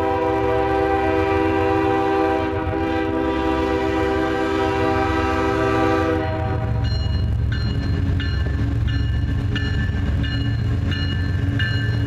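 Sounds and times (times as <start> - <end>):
locomotive horn: 0.0 - 7.3
locomotive engine rumble: 0.0 - 12.0.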